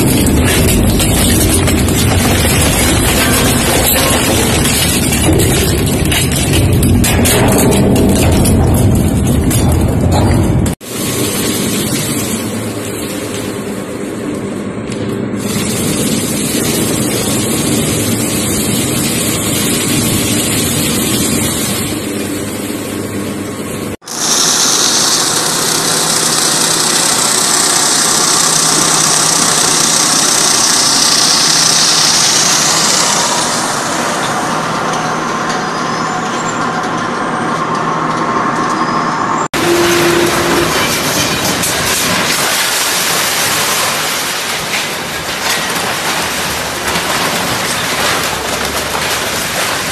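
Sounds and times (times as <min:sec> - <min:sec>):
shredder grinding: 0:00.0 - 0:10.1, 0:24.0 - 0:38.8, 0:39.6 - 0:49.9
glass cracking and crunching: 0:00.0 - 0:10.4, 0:40.5 - 0:49.9.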